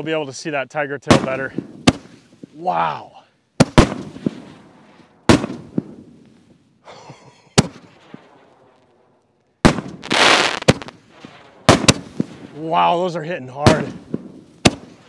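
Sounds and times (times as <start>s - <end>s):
aerial firework shells bursting: 3.6s - 6.3s, 7.6s - 12.6s.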